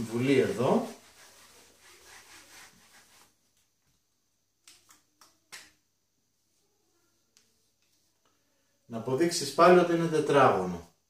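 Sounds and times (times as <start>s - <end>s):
eraser rubbing on whiteboard: 0.0s - 3.4s.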